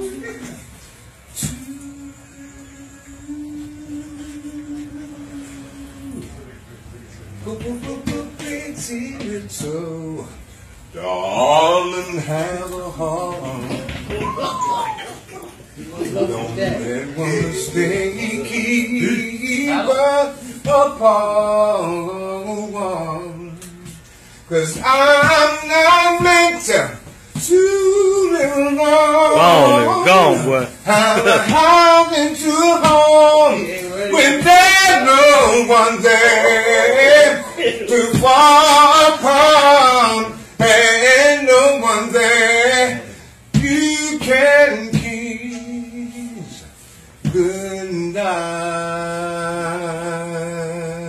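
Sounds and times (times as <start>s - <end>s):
man singing a cappella: 1.1s - 6.7s, 7.4s - 14.5s, 16.1s - 51.0s.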